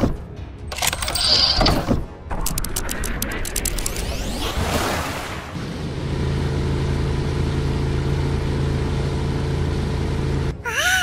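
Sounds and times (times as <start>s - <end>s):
cartoon train engine hum: 5.8s - 11.0s.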